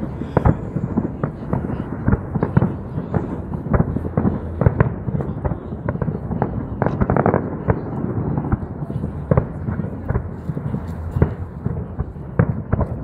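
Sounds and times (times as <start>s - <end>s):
fireworks bangs and crackles: 0.0s - 13.0s
steady low rumble: 0.0s - 13.0s.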